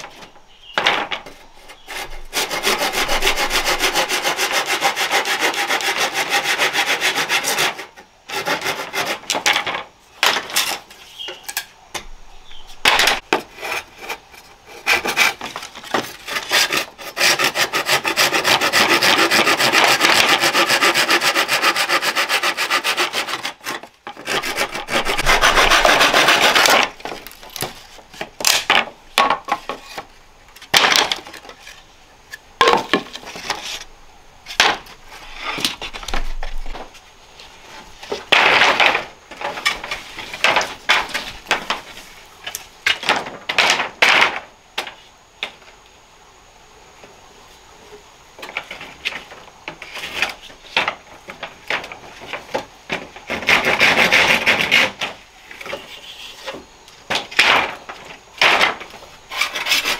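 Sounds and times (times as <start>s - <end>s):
hand saw cutting bamboo: 1.6s - 9.6s, 13.4s - 26.9s, 53.3s - 55.1s, 58.4s - 59.9s.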